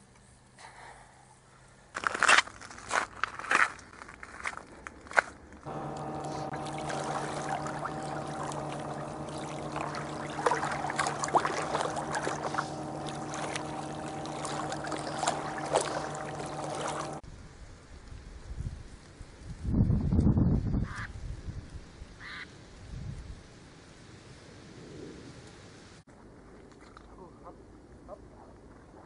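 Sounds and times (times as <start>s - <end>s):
outdoor background: 0.0s - 29.0s
steady low drone: 5.7s - 17.2s
water splashing and lapping: 5.7s - 17.2s, 26.4s - 27.2s.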